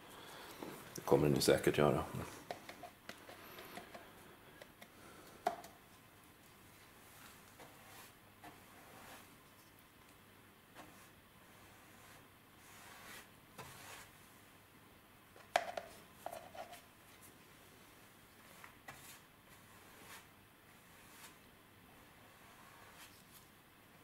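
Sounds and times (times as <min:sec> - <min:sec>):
brush tapping plastic cup: 0:04.6 - 0:05.8, 0:15.4 - 0:16.7
paintbrush strokes on metal: 0:06.7 - 0:09.7, 0:10.7 - 0:14.5, 0:18.4 - 0:21.4, 0:22.0 - 0:23.5.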